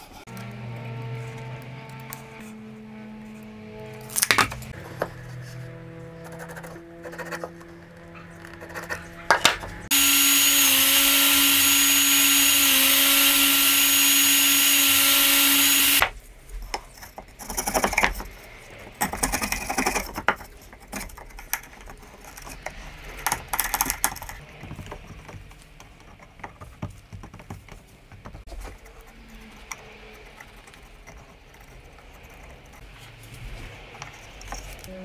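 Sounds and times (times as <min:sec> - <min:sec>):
power tool motor running: 0:09.4 - 0:16.1
light clicks and scrapes: 0:16.2 - 0:34.9.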